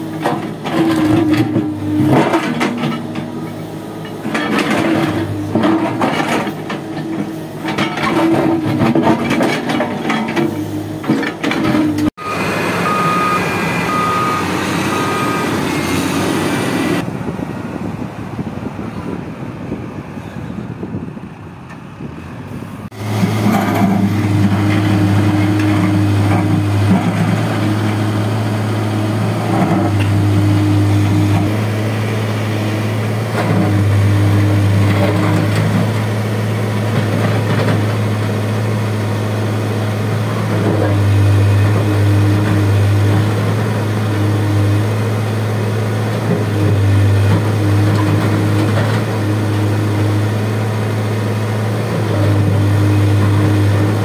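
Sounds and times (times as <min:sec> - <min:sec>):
backhoe diesel engine running: 0:00.0 - 0:54.0.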